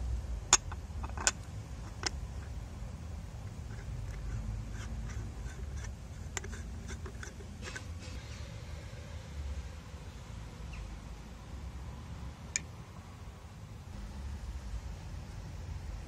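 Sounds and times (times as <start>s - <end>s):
low steady rumble: 0.0s - 16.0s
faint ticks of screwing: 3.4s - 7.9s.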